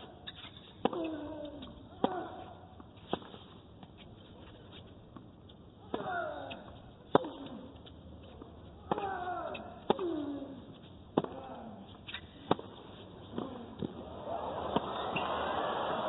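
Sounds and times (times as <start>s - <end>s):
racket hitting ball: 5.9s - 7.6s, 12.1s - 14.0s.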